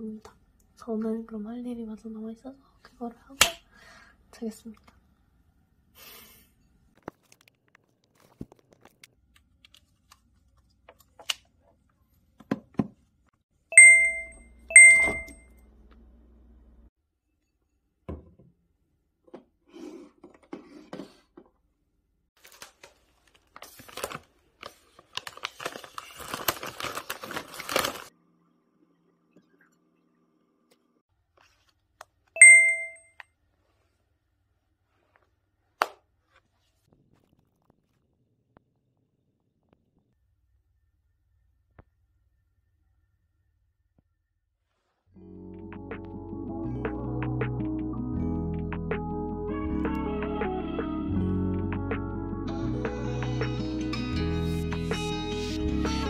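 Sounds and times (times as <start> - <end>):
bright notification chime: 13.8 - 15.4, 32.4 - 33.0
rustling and crinkling: 22.4 - 28.1, 31.3 - 32.3.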